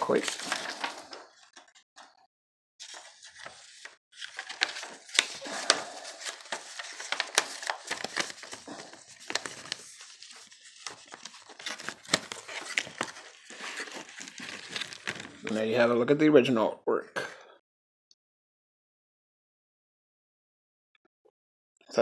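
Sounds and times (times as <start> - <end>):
paper insert rustling and crinkling: 0.0 - 2.1, 2.8 - 15.8.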